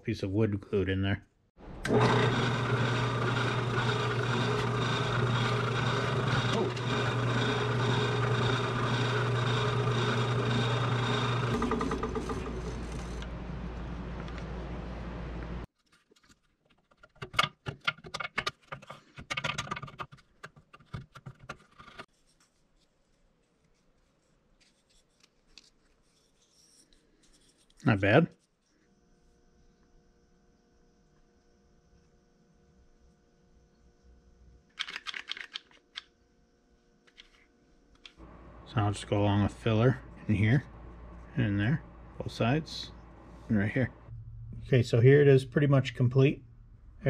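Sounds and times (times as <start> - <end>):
drill press motor humming: 1.6 - 13.6, 38.2 - 44.7.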